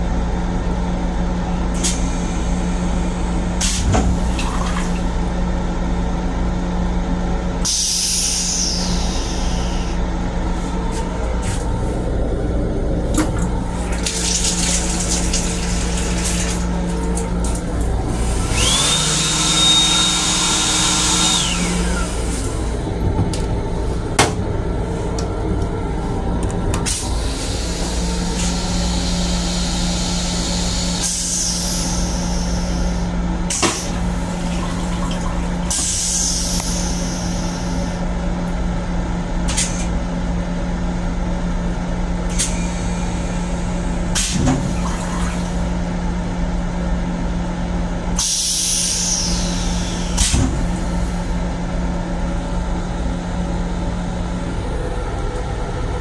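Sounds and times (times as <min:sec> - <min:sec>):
train car rumbling: 0:00.0 - 0:18.9, 0:21.4 - 0:56.0
electrical hum: 0:00.0 - 0:56.0
high whine: 0:01.5 - 0:33.2.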